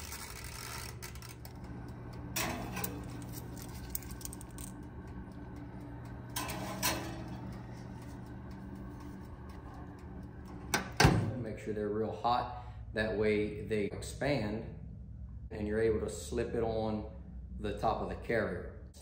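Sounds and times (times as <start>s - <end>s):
steady low hum: 0.0s - 19.0s
metal bearings clattering on wire rack: 2.4s - 4.7s.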